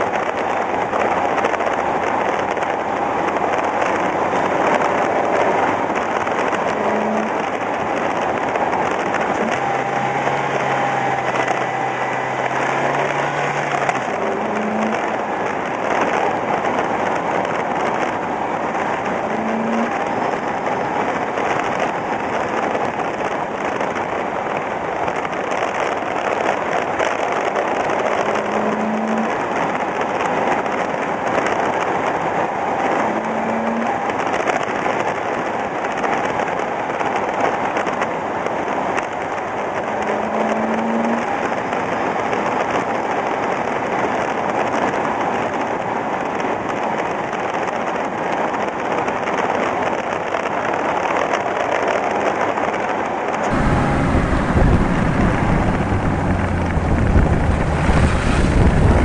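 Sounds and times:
tyre and wind noise: 0:00.0 - 0:59.0
low engine note: 0:09.1 - 0:15.4, 0:53.4 - 0:59.0.

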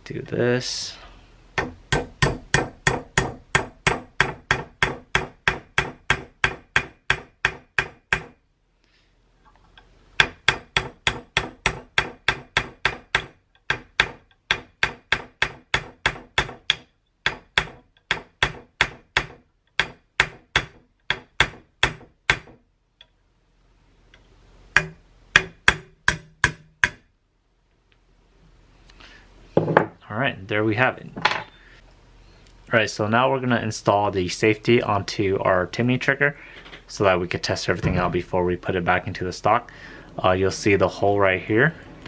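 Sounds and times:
hammer tapping metal punch: 0:01.6 - 0:08.4, 0:10.2 - 0:23.1, 0:24.7 - 0:27.1.

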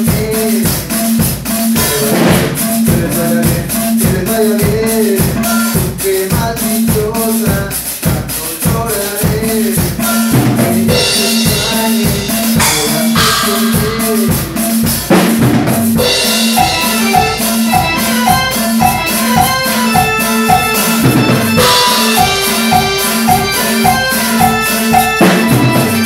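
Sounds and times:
drum beat: 0:00.0 - 0:26.0
cymbals washing: 0:10.0 - 0:26.0
electronic keyboard melody: 0:10.0 - 0:26.0.

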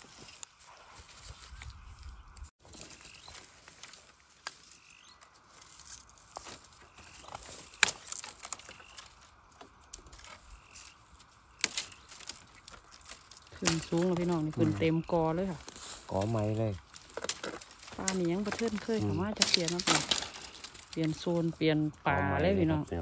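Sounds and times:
dry bamboo crackling and knocking: 0:00.0 - 0:23.0
bamboo stem snapping: 0:03.8 - 0:04.9, 0:07.2 - 0:14.6, 0:15.6 - 0:21.2.

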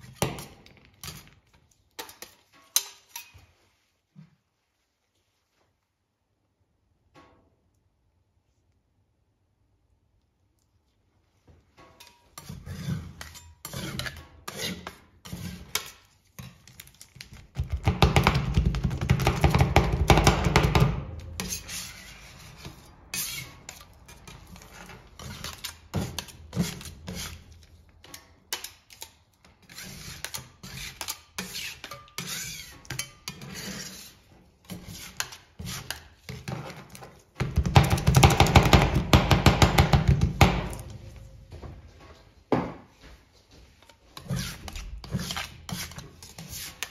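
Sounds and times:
metal spatulas chopping on cold plate: 0:17.5 - 0:41.2, 0:44.2 - 0:46.9
light taps and scrapes: 0:40.8 - 0:46.9.

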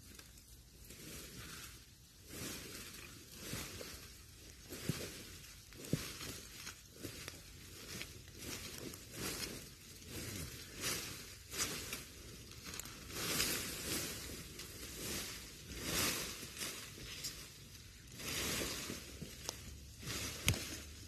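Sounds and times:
dry leaves and twigs crackling: 0:00.0 - 0:21.0.

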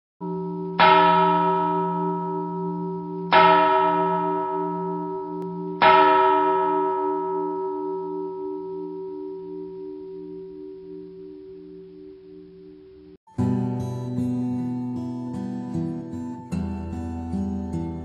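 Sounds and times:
large bell tolling: 0:00.2 - 0:12.6.

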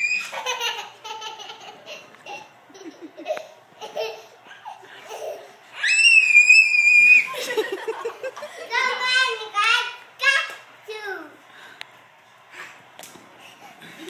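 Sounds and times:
toddler high-pitched squeal: 0:00.0 - 0:00.4, 0:05.8 - 0:07.3
toddlers laughing and giggling: 0:00.0 - 0:05.8, 0:07.1 - 0:09.7.

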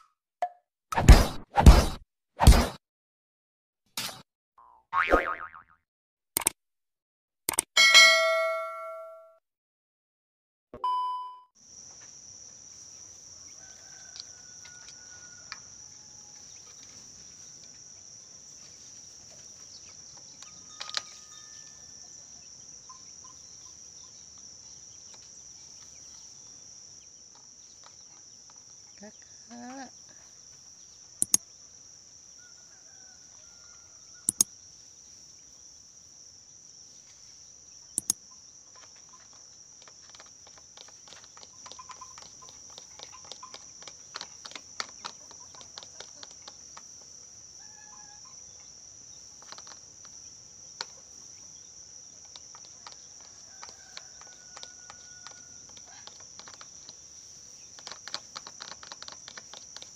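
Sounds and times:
sharp clicks: 0:06.4 - 0:06.6, 0:07.5 - 0:07.7, 0:31.2 - 0:31.4, 0:34.3 - 0:34.5, 0:38.0 - 0:38.2, 0:39.8 - 0:46.8, 0:57.8 - 0:59.9
insect chirring: 0:11.6 - 0:59.9.

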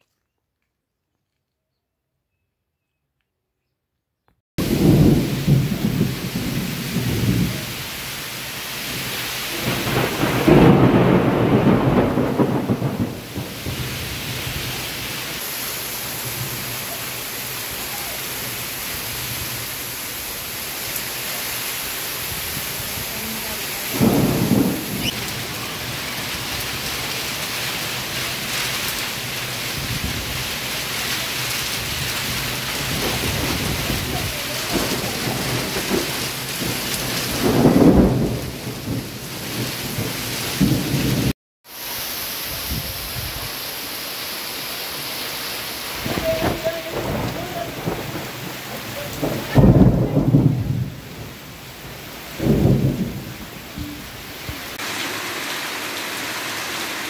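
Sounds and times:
low rumbles of thunder: 0:04.6 - 0:08.0, 0:08.8 - 0:14.9, 0:22.4 - 0:26.8, 0:31.8 - 0:41.3, 0:46.0 - 0:54.5
heavy rain pouring: 0:04.6 - 0:57.0.

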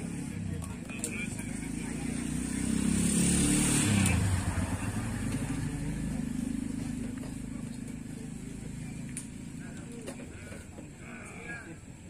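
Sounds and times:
vehicle engine passing by: 0:00.0 - 0:09.8.

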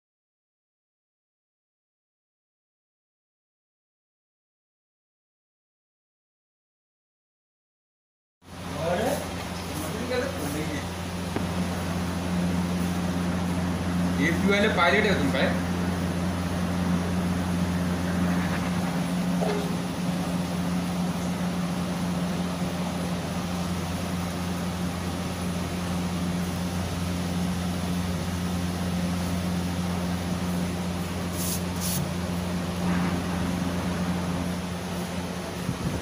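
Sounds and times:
air conditioner hum: 0:08.5 - 0:36.0.

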